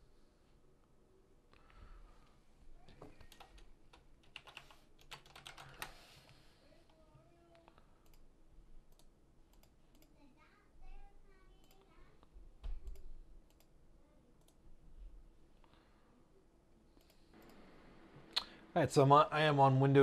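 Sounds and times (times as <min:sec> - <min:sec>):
keyboard keys clicking: 0:03.2 - 0:06.0.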